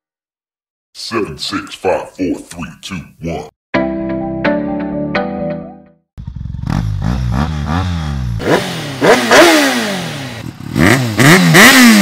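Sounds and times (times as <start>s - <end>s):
motorcycle engine revving: 6.2s - 12.0s.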